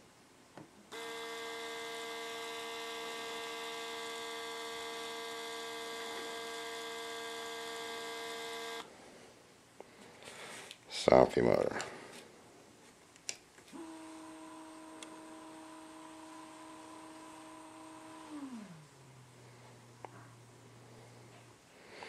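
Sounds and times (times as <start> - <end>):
electric motor humming: 0.9 - 8.9, 13.7 - 21.2.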